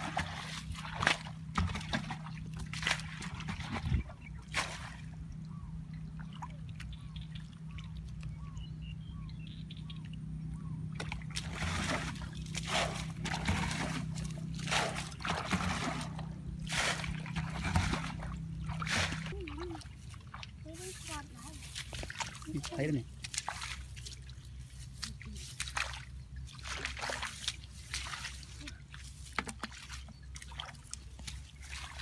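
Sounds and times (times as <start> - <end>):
hands splashing in muddy water: 0.0 - 5.1, 11.0 - 20.5, 21.6 - 32.0.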